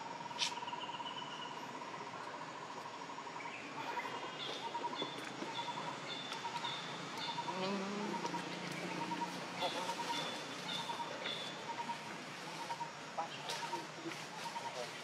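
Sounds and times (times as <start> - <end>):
short chirping calls: 3.6 - 15.0.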